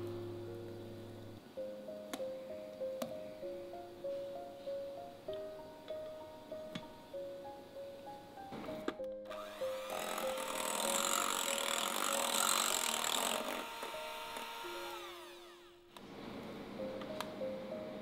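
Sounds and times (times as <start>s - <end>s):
electric hand mixer whirring: 9.3s - 16.5s.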